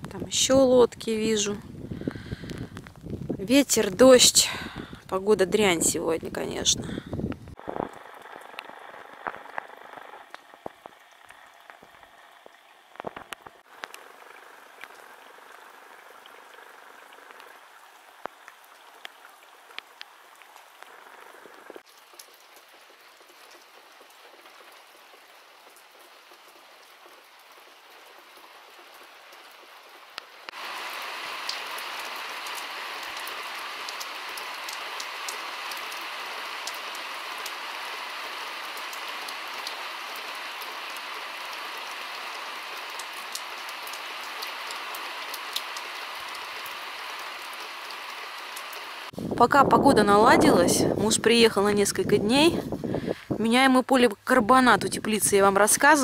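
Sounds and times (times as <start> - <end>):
rain falling on puddles: 0.0 - 49.4
single raindrop ticks: 21.8 - 25.8, 31.4 - 37.8, 38.6 - 48.8.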